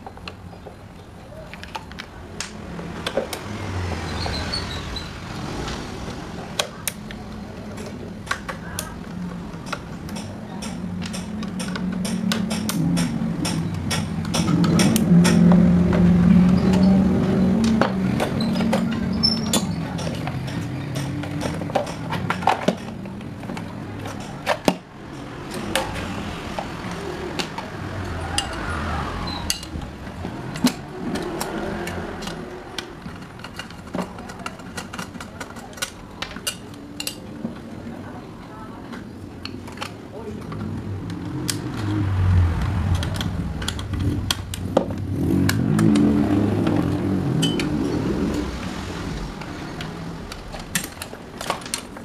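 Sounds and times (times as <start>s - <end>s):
motor vehicle engine rumble: 0.0s - 52.0s
plastic parts knocking and clicking: 6.6s - 16.8s, 17.6s - 27.7s, 29.5s - 37.7s, 49.8s - 52.0s.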